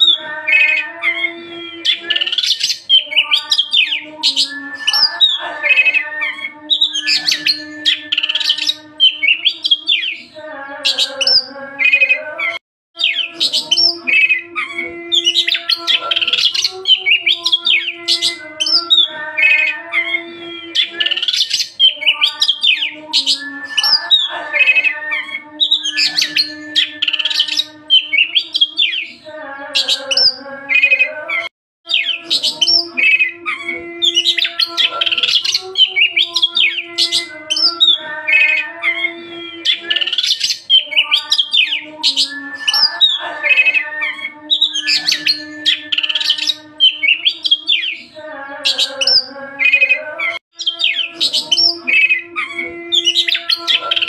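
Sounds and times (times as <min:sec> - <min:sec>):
bird singing whistles and chatter: 0:00.0 - 0:10.3, 0:13.0 - 0:29.2, 0:31.9 - 0:54.0
buzzy wavering bird calls: 0:31.9 - 0:54.0.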